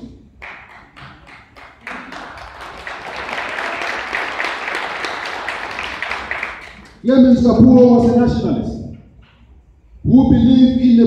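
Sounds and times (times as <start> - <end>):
audience applauding: 0.4 - 7.0.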